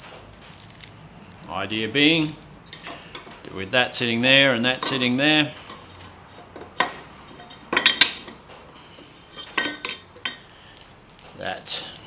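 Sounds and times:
metal pieces clinking: 0.4s - 2.9s, 9.6s - 12.0s.

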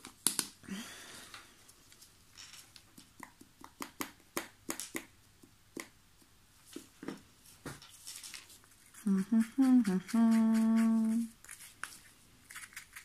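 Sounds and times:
plastic pots clicking and tapping: 2.9s - 6.3s.

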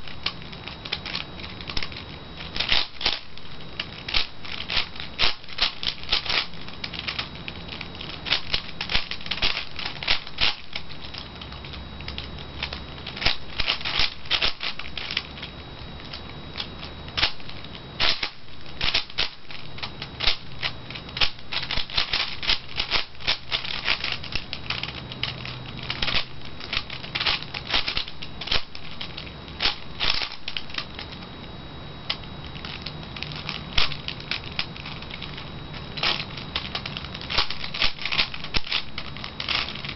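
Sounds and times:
puzzle cube plastic clicking: 0.1s - 31.2s, 32.1s - 35.4s, 36.0s - 39.9s.

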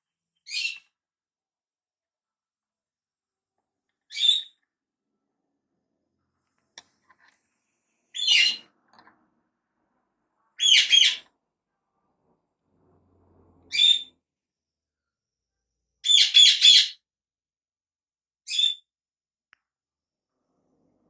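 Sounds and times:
bird chirping: 0.4s - 0.9s, 4.1s - 4.6s, 8.1s - 8.7s, 10.6s - 11.3s, 13.7s - 14.2s, 16.0s - 17.0s, 18.5s - 18.9s.

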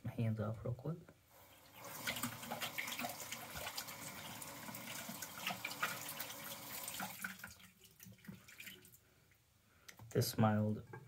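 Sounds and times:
tap water running: 1.4s - 9.0s
hands rinsing and splashing: 1.8s - 9.0s.

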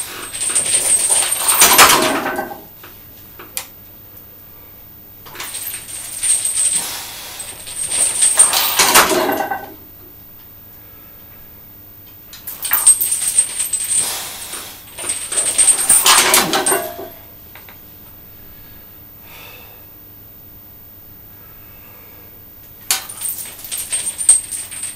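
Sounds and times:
chains rattling and clinking: 0.0s - 2.6s, 5.3s - 9.8s, 12.4s - 17.3s, 22.9s - 24.9s.

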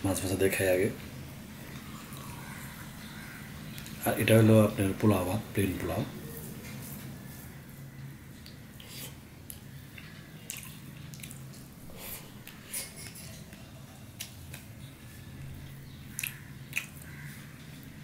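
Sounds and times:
steady low hum: 0.0s - 18.0s
chewing: 1.7s - 2.8s, 8.4s - 17.9s.

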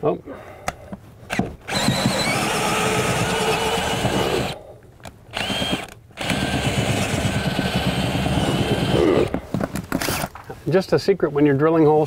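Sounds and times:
power drill boring into wood: 1.3s - 4.6s, 5.3s - 9.3s.

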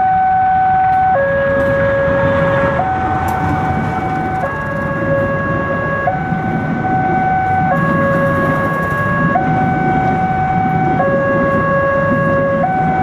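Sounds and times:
two-tone level crossing alarm: 0.0s - 13.0s
train rumbling past: 0.8s - 13.0s.

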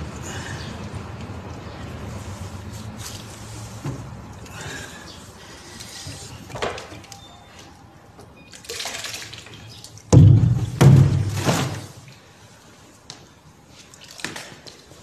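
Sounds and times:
water sloshing and splashing: 1.9s - 12.6s, 13.6s - 15.0s
heavy splashes: 8.6s - 12.3s.

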